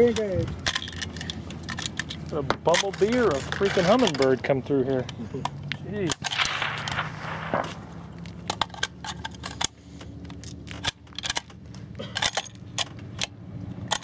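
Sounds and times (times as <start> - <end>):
rifle action clicking and rattling: 0.0 - 14.0
low hum: 6.2 - 14.0.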